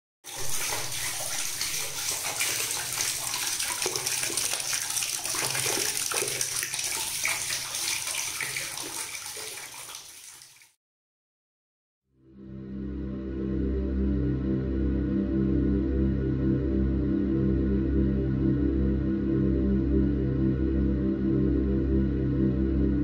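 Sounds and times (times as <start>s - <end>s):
water jet splashing on tiles: 0.3s - 10.8s
music: 12.1s - 23.0s.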